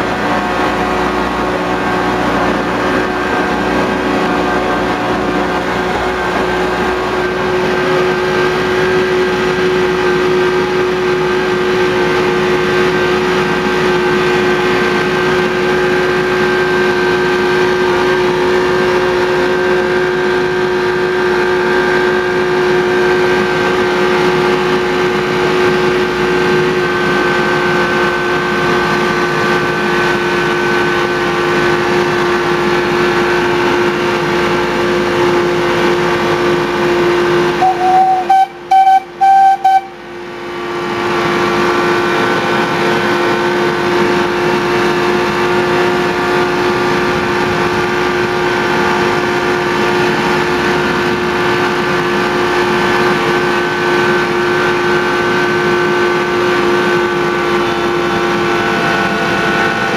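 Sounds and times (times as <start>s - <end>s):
locomotive engine running: 0.0s - 59.9s
locomotive horn blast: 37.5s - 40.2s.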